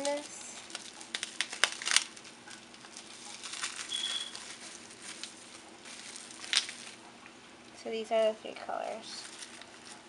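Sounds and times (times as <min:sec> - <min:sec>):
wrapping rustling and crinkling: 0:00.0 - 0:07.1, 0:07.7 - 0:10.0.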